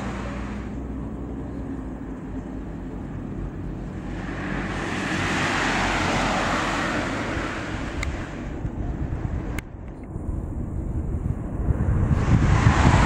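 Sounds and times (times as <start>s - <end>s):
low engine rumble: 0.0s - 13.0s
car driving past: 3.4s - 8.6s.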